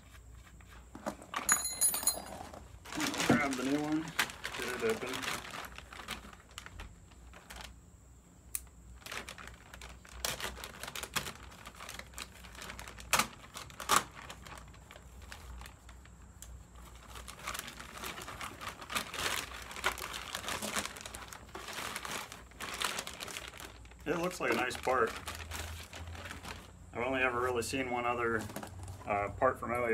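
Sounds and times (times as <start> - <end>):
plastic bag crinkling: 2.7 - 7.8, 8.8 - 27.2
sharp snaps: 8.5 - 8.7.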